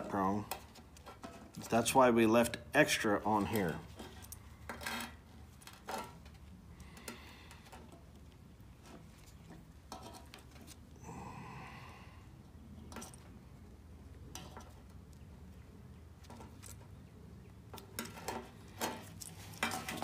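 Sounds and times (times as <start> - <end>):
gloved hands handling wire: 0.0 - 11.0, 17.7 - 20.0.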